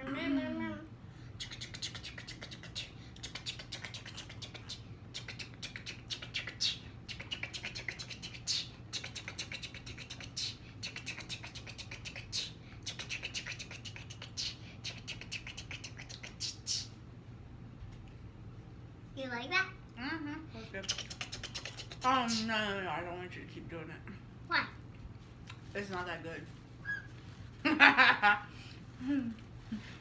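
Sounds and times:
child making rattling mouth noise: 0:01.4 - 0:16.9, 0:20.8 - 0:22.4.

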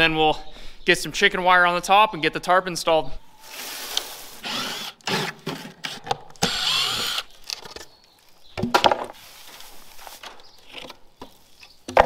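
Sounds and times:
cordless drill running: 0:04.4 - 0:05.3, 0:06.4 - 0:07.3.

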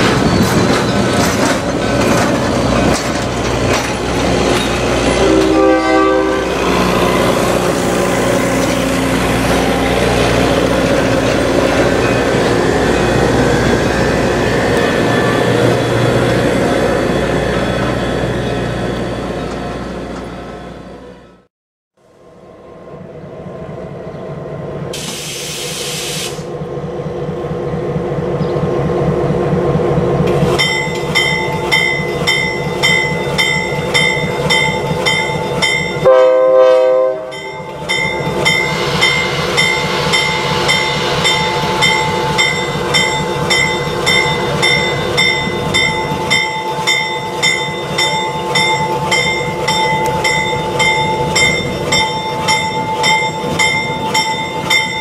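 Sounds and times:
diesel locomotive engine running: 0:00.0 - 0:55.0
locomotive bell ringing: 0:03.4 - 0:20.9, 0:30.6 - 0:36.4, 0:37.1 - 0:55.0
train horn blast: 0:05.0 - 0:09.2, 0:36.0 - 0:37.5
air hiss: 0:25.0 - 0:26.5.

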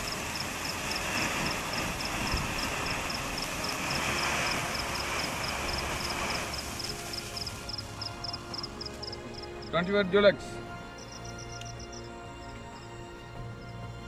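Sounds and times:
firework fountain hissing: 0:00.0 - 0:09.7.

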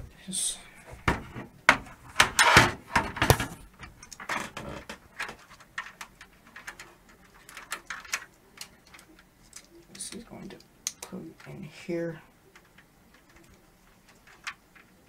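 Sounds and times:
metal panel knocks and rattles: 0:01.0 - 0:05.4.

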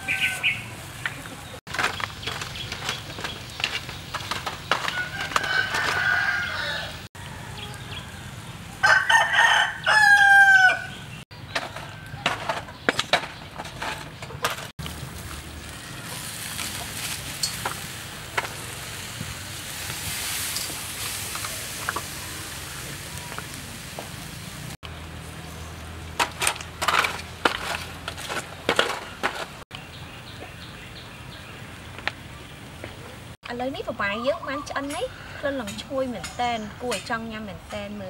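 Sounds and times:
rooster crowing: 0:00.0 - 0:00.7, 0:04.8 - 0:11.0.

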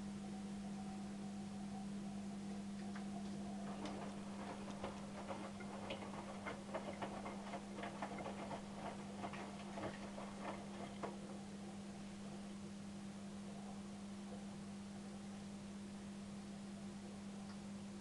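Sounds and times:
washing machine hum: 0:00.0 - 0:18.0
tumbling load clicking and tapping: 0:03.7 - 0:11.4.

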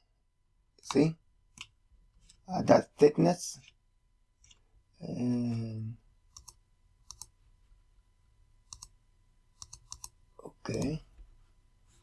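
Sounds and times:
computer mouse clicking: 0:06.3 - 0:07.4, 0:08.7 - 0:09.0, 0:09.6 - 0:11.0.

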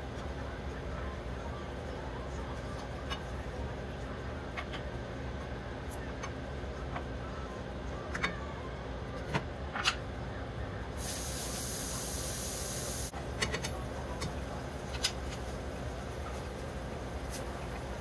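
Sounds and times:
hiss of steam: 0:11.0 - 0:13.1.

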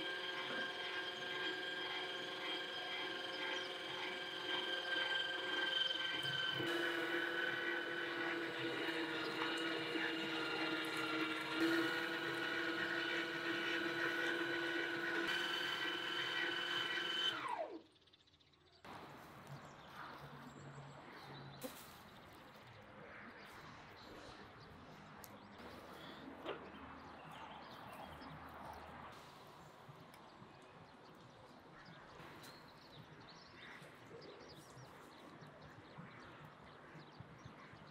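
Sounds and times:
electric meat grinder running: 0:00.0 - 0:17.9
faint outdoor ambience: 0:17.5 - 0:37.9.

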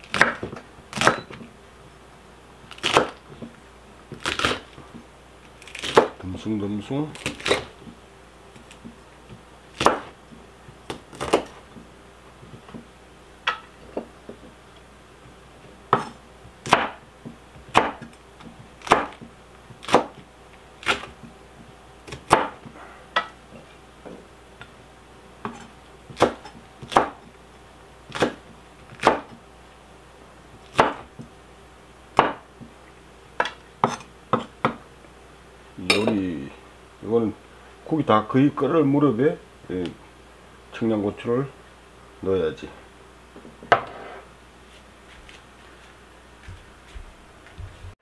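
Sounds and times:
knife chopping on wooden board: 0:00.0 - 0:01.3, 0:02.8 - 0:03.2, 0:05.7 - 0:06.2, 0:09.8 - 0:10.2, 0:10.9 - 0:11.6, 0:15.9 - 0:20.2, 0:22.1 - 0:23.4, 0:25.4 - 0:27.2, 0:28.1 - 0:29.4, 0:30.7 - 0:31.3, 0:32.2 - 0:32.7, 0:33.4 - 0:34.8.

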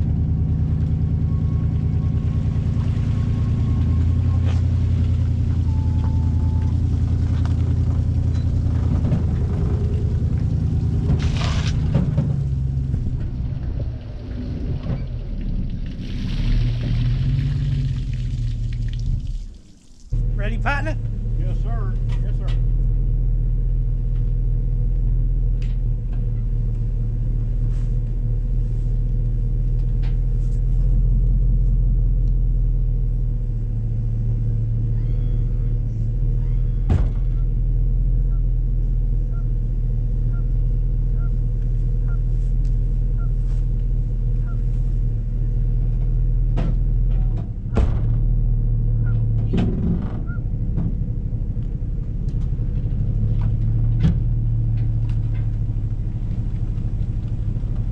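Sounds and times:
vehicle engine idling: 0:00.0 - 0:57.9
sharp knocks and thumps: 0:07.1 - 0:13.7, 0:46.5 - 0:48.4, 0:49.1 - 0:51.1.

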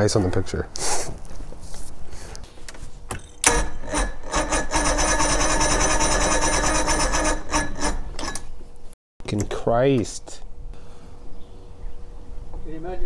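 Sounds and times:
electric starter cranking outboard: 0:03.4 - 0:08.3.

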